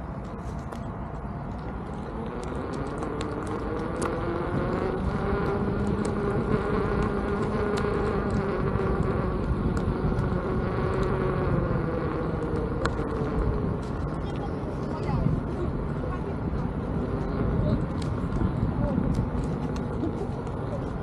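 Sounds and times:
wind rumble on microphone: 0.0s - 21.0s
electric motor whining: 1.7s - 14.8s.

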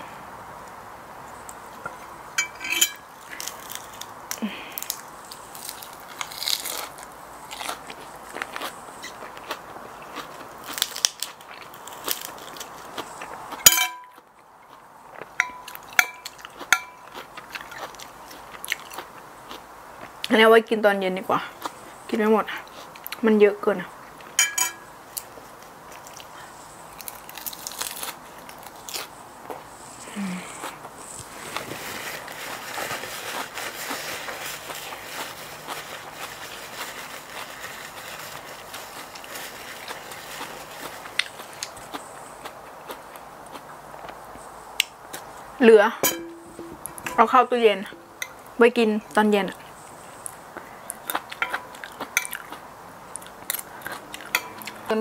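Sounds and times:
faint outdoor hiss: 0.0s - 55.0s
metal spoon clinking on plate: 2.4s - 3.0s, 13.6s - 14.2s, 15.4s - 17.1s, 24.4s - 24.9s, 46.0s - 47.2s, 54.3s - 54.6s
lettuce leaves crackling: 2.7s - 13.7s, 25.1s - 43.6s
person chewing: 3.2s - 20.2s, 32.8s - 44.2s, 50.2s - 54.9s.

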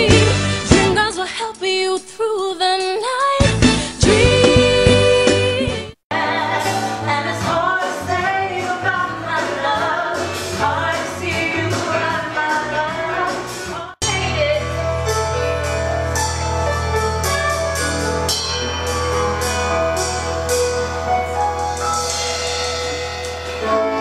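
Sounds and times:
instrumental music with drums: 0.0s - 1.1s, 3.4s - 24.0s
women singing with a band: 4.0s - 13.6s.

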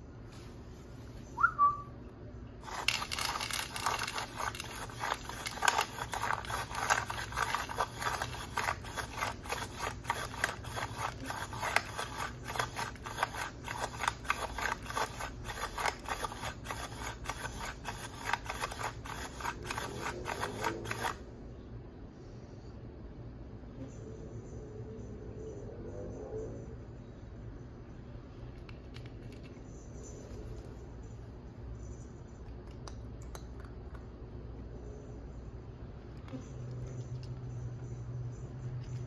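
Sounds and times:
dry kibble clicking and scraping: 2.6s - 21.3s, 28.3s - 30.8s, 36.0s - 39.0s.

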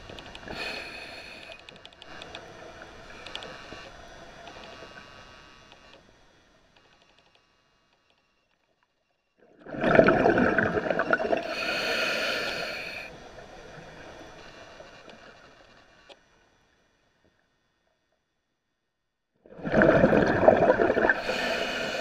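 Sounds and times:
bubbles gurgling underwater: 9.6s - 11.5s, 19.5s - 21.4s
high hiss: 11.4s - 15.4s.

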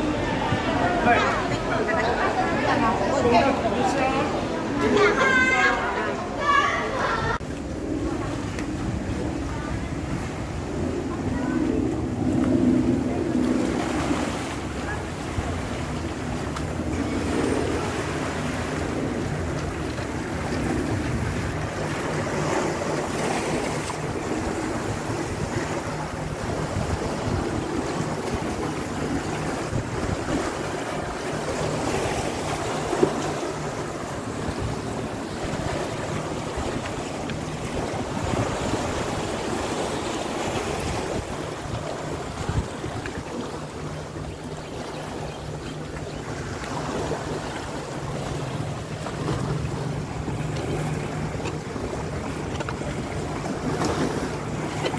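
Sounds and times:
waves lapping on rocks: 0.0s - 54.9s
wind on microphone: 7.2s - 44.6s.

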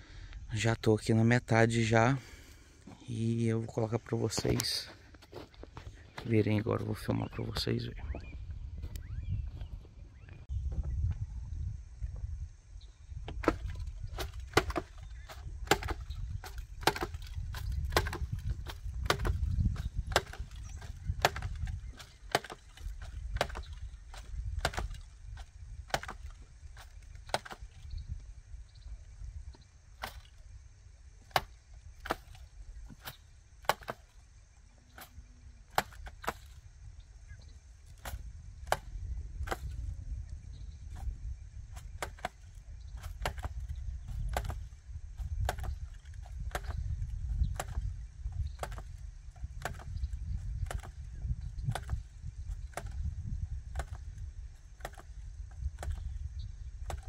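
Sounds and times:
hand planter jabbing into soil: 13.4s - 27.8s, 30.0s - 30.4s, 31.2s - 34.2s, 35.0s - 36.6s, 37.9s - 39.8s, 41.8s - 51.0s, 51.6s - 53.0s, 53.7s - 56.1s.

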